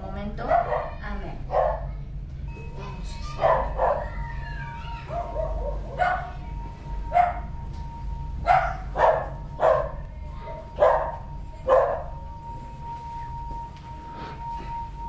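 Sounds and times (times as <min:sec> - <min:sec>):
dog barking: 0:00.4 - 0:02.0, 0:03.4 - 0:04.2, 0:05.1 - 0:06.4, 0:07.1 - 0:07.5, 0:08.5 - 0:10.0, 0:10.7 - 0:12.2
singing bowl ringing: 0:02.4 - 0:15.0.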